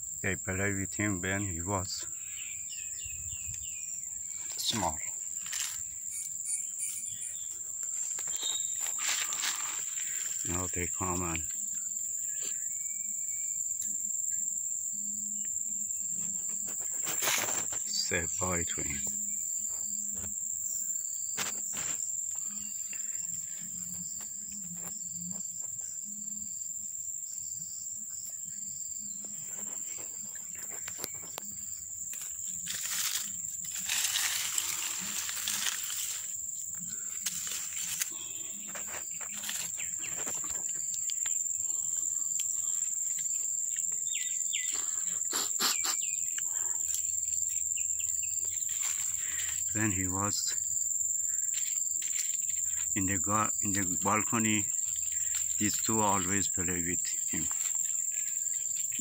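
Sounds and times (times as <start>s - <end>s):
insects droning: 0.0s - 59.0s
rustling: 29.3s - 41.3s, 48.6s - 49.7s.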